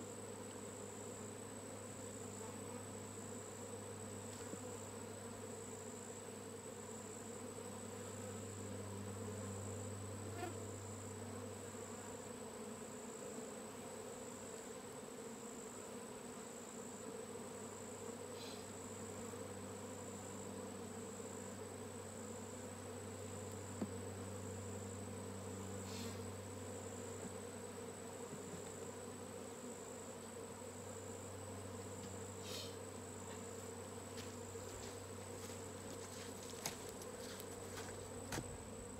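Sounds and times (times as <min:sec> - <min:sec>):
bee swarm buzzing: 0:00.0 - 0:38.9
high thin insect trill: 0:25.7 - 0:26.4, 0:31.8 - 0:38.9.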